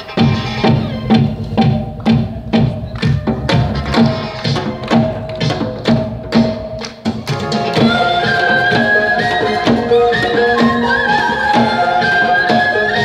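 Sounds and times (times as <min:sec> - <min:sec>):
drum beat: 0:00.0 - 0:13.0
bamboo flute: 0:07.8 - 0:13.0.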